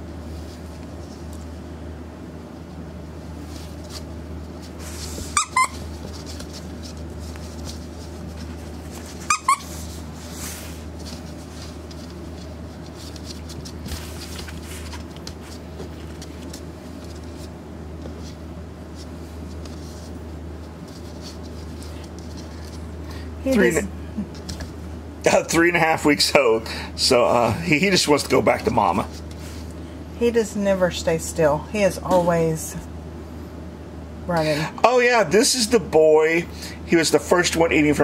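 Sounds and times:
steady low hum: 0.0s - 38.0s
puppy squealing: 5.3s - 5.9s, 9.2s - 9.9s.

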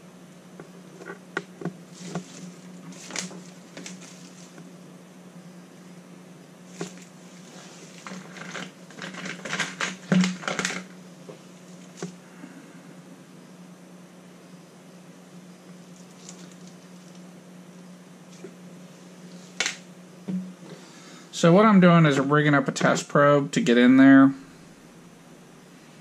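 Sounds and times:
steady low hum: 0.0s - 26.0s
clicks and rustling of test leads: 7.9s - 10.9s.

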